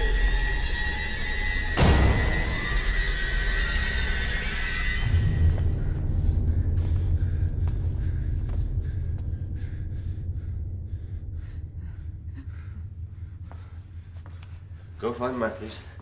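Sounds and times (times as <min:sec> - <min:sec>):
low rumble: 0:00.0 - 0:16.0.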